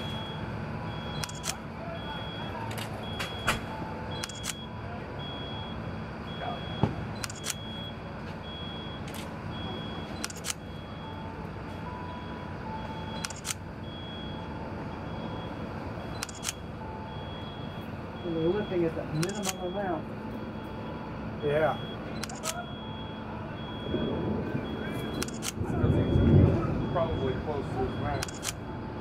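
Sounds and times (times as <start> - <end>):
crane engine hum: 0.0 - 29.0
faint high beeping: 0.0 - 29.0
camera shutter clicks: 1.2 - 1.6, 4.2 - 4.6, 7.2 - 7.6, 10.2 - 10.6, 13.2 - 13.6, 16.2 - 16.6, 19.2 - 19.6, 22.2 - 22.6, 25.2 - 25.6, 28.2 - 28.6.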